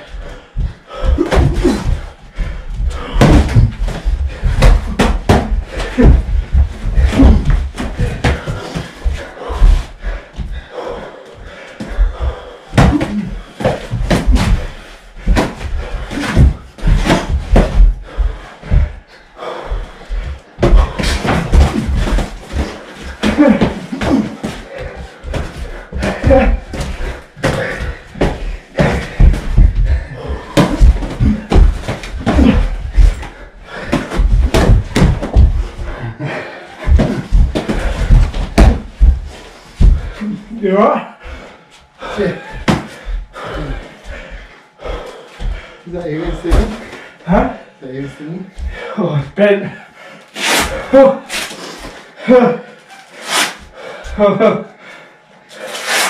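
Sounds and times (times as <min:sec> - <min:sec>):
boxing gloves punching: 0:03.0 - 0:08.8, 0:12.8 - 0:18.4, 0:20.6 - 0:35.7, 0:36.8 - 0:39.2
feet scuffling: 0:41.7 - 0:47.1.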